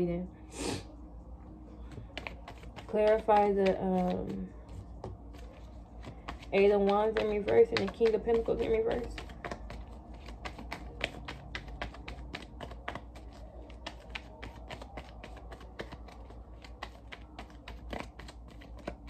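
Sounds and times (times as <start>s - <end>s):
cards being shuffled: 1.8s - 19.0s.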